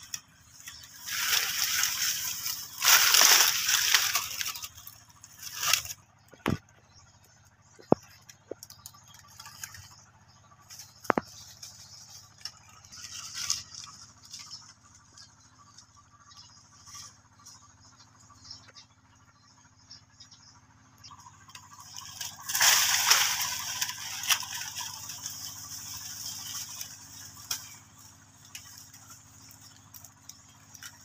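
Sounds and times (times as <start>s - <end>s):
leaves rustling and crackling: 0.0s - 6.6s, 10.7s - 15.3s, 21.5s - 31.0s.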